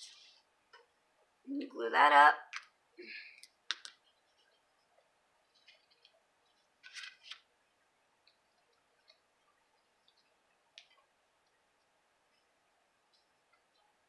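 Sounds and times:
paper rustling and sliding: 6.8s - 7.5s.

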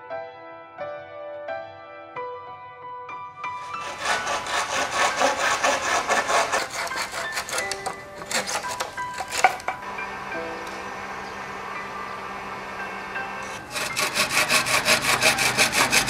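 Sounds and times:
soft background music: 0.0s - 16.0s
hand saw cutting bamboo: 3.6s - 9.8s, 13.4s - 16.0s.

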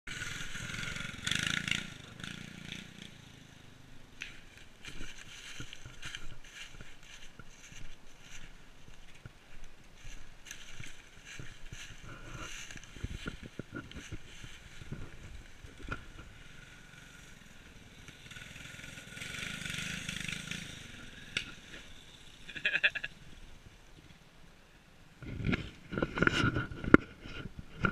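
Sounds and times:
small engine running: 0.1s - 3.6s, 15.8s - 22.7s
knocks and crackles: 4.2s - 16.6s, 25.2s - 27.9s.

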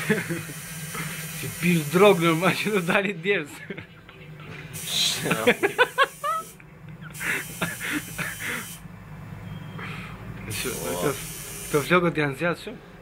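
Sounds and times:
tattoo machine buzzing: 0.0s - 3.0s, 4.8s - 8.8s, 10.5s - 12.0s.

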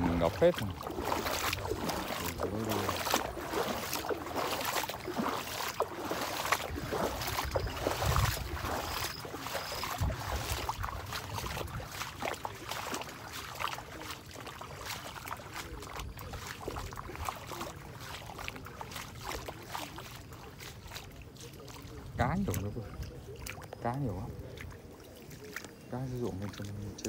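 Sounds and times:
faint water splashing: 0.0s - 27.0s
footsteps through wet grass: 0.0s - 27.0s
wind gusts on microphone: 6.6s - 12.2s.

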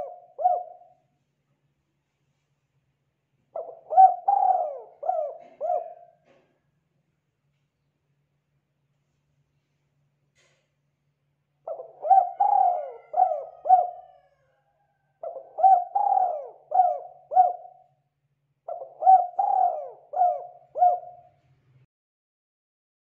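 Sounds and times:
dove cooing: 0.0s - 1.0s, 3.6s - 6.5s, 11.6s - 14.5s, 15.2s - 17.9s, 18.7s - 21.4s.

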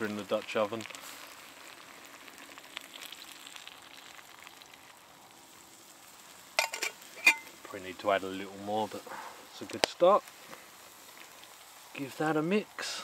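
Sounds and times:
water pouring: 0.0s - 4.9s
food sizzling in a pot: 0.0s - 13.0s.

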